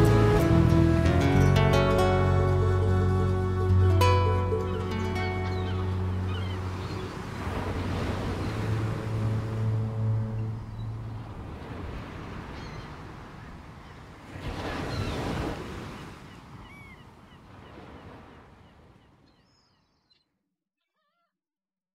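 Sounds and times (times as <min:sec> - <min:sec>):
ocean waves: 0:00.0 - 0:19.7
faint high bird calls: 0:12.5 - 0:14.1, 0:15.9 - 0:21.4.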